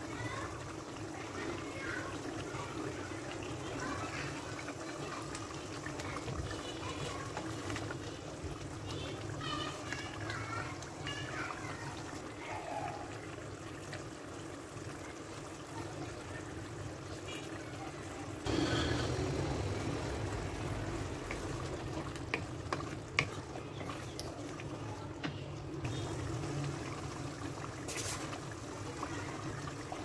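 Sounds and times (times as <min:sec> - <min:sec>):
curry simmering and bubbling: 0:00.0 - 0:30.0
wooden spoon knocking on pan: 0:22.2 - 0:23.4.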